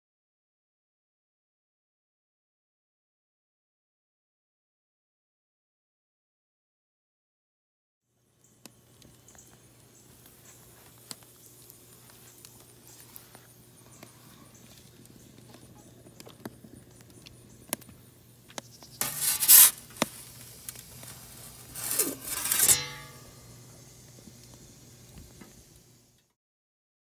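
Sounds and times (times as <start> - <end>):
fire crackling and popping: 8.5 - 26.0.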